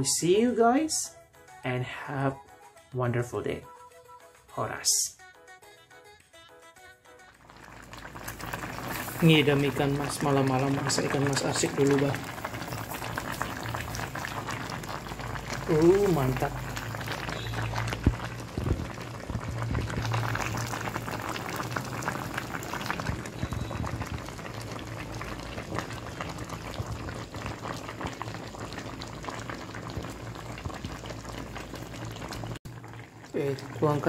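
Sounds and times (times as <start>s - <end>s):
broth bubbling and popping: 7.4s - 34.0s.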